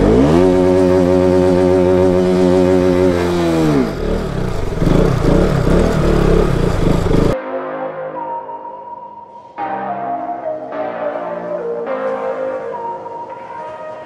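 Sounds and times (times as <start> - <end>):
motorcycle engine revving: 0.0 - 7.4.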